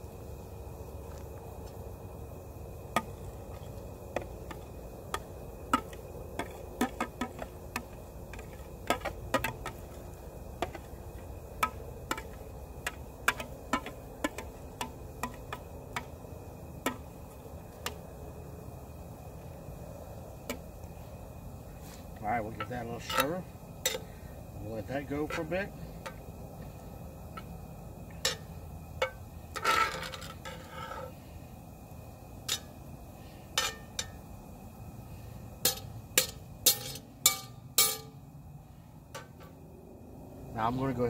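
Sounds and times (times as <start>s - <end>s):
wood fire rumbling: 0.0s - 37.7s.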